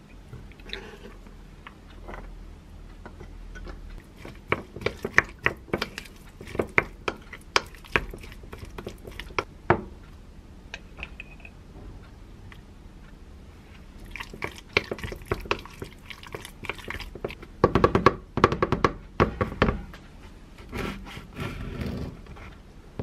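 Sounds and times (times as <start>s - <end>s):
spoon mashing avocado: 3.0s - 9.5s, 14.0s - 17.5s.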